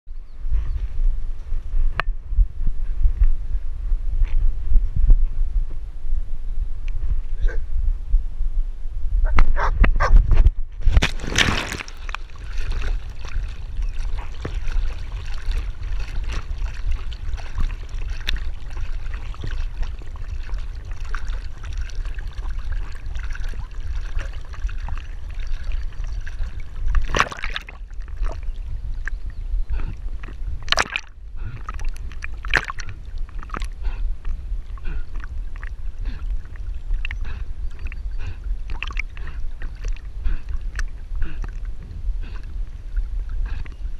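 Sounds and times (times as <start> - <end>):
low rumble: 0.1 - 43.9
water sloshing and lapping: 10.8 - 43.9
dog splashing into water: 10.9 - 28.5.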